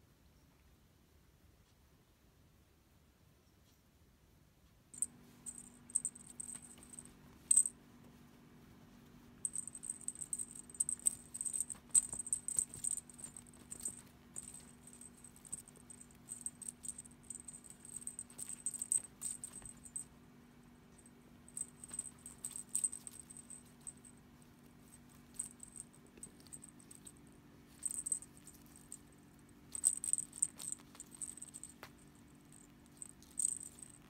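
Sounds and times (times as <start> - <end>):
small bell jingling: 5.0 - 7.8, 9.4 - 20.2, 20.8 - 34.0.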